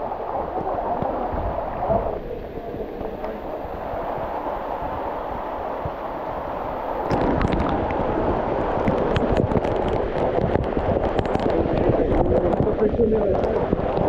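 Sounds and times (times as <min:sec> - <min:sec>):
waterfall rushing: 0:00.0 - 0:14.0
drops crackling near microphone: 0:07.0 - 0:14.0.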